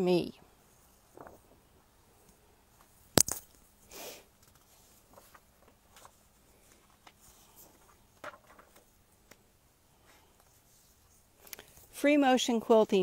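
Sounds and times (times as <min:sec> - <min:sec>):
sharp loud click: 0:03.2 - 0:03.5.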